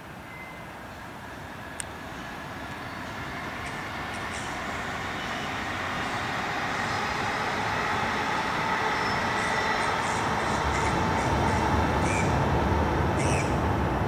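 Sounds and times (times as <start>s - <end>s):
faint steady tone: 0.0s - 6.0s.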